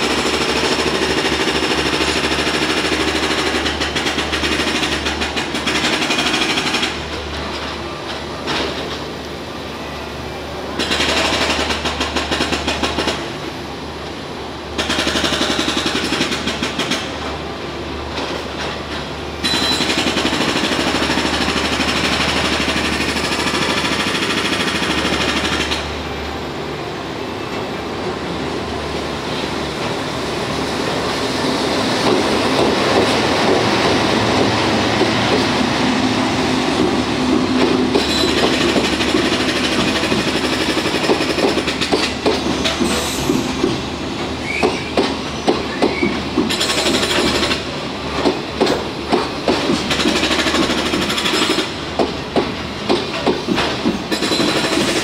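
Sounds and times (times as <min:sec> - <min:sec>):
freight train rumbling past: 0:00.0 - 0:55.0
wheels clacking over rail joints: 0:32.0 - 0:55.0.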